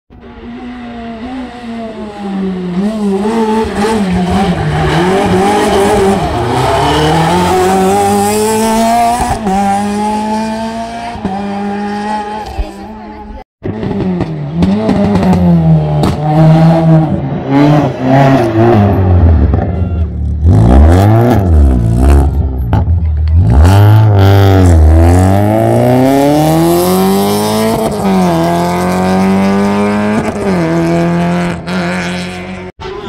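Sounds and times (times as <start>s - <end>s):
race car engine at full throttle: 0.1s - 33.0s.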